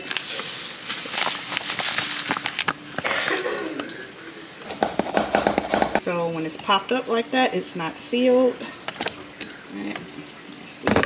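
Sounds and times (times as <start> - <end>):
powder pouring from crinkly bag: 0.0 - 3.6.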